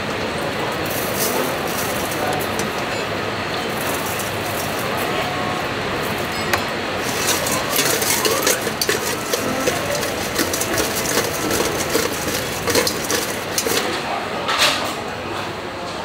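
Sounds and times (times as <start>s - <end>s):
kitchen background hum: 0.0s - 16.0s
utensils clinking against metal bowl: 0.8s - 15.0s.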